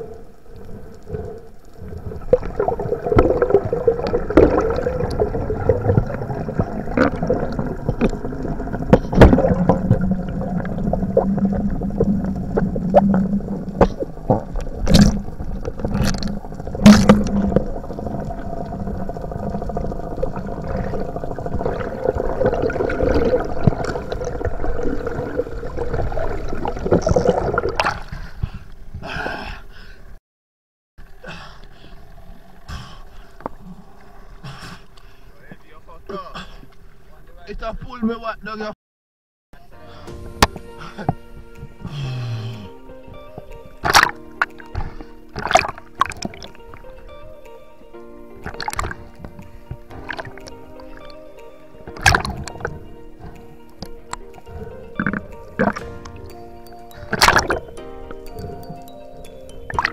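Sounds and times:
outboard motor drone underwater: 0.0s - 27.9s
water rushing and gurgling: 0.0s - 28.1s, 43.0s - 59.9s.

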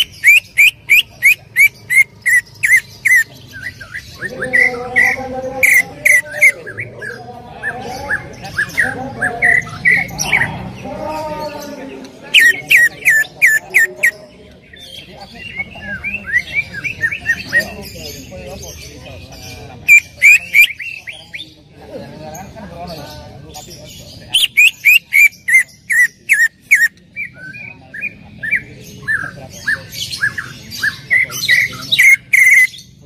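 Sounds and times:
bird sharp chirps: 0.0s - 4.3s, 24.2s - 33.0s
bird warbling song: 0.0s - 21.7s, 22.3s - 33.0s.

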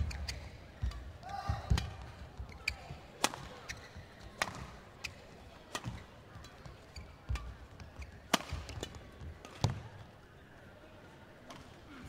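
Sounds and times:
rackets hitting shuttlecock: 3.2s - 9.8s.

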